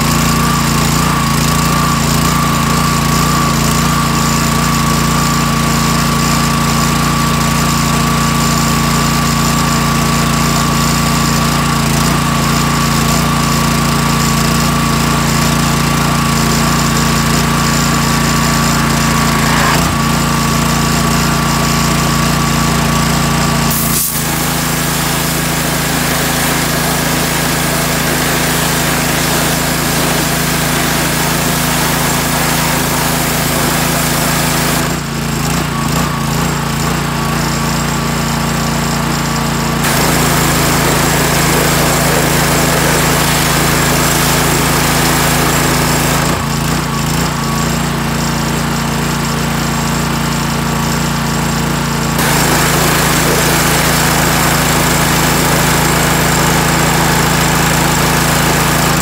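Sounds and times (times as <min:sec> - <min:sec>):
pressure washer engine running: 0:00.0 - 0:59.0
hissing water jet spraying: 0:23.7 - 0:34.8, 0:39.8 - 0:46.2, 0:52.2 - 0:59.0.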